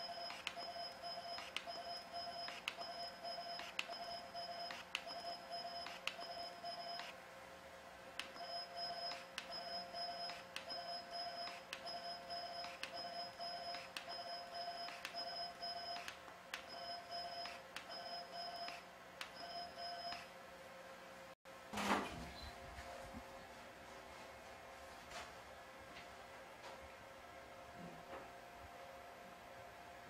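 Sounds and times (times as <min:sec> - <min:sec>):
steady beeping tone: 0:08.4 - 0:16.0.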